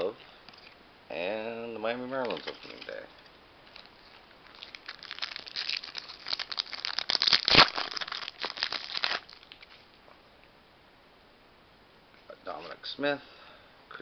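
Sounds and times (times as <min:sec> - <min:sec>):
wrapper torn open and crinkled: 0:03.8 - 0:09.8.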